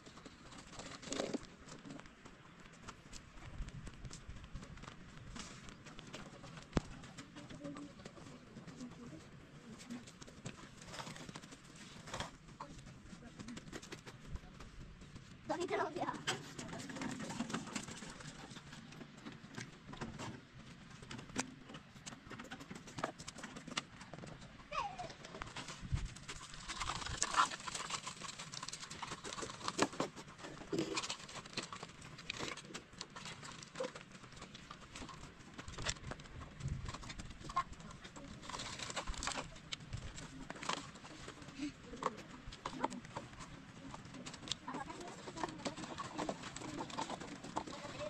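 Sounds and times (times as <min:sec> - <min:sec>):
stones dropping into plastic wheelbarrows: 0:23.0 - 0:36.2.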